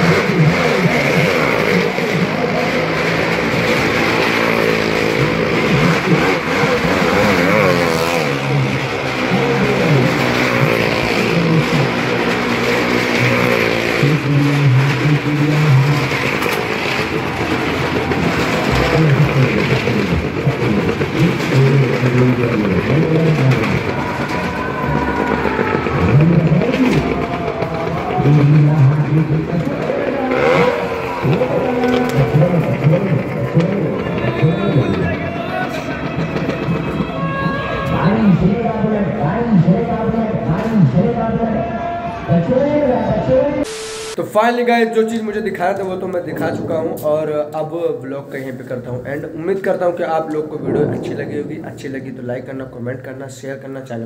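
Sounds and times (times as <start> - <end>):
engines revving while circling: 0.0 - 35.2.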